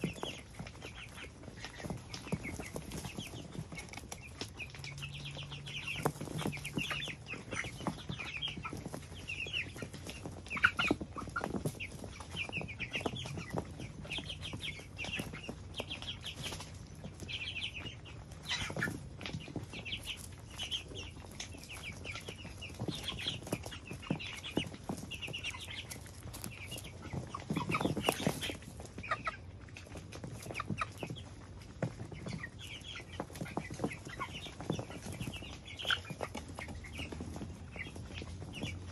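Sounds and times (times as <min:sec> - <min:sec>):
chickens chirping and clucking: 0:00.0 - 0:38.9.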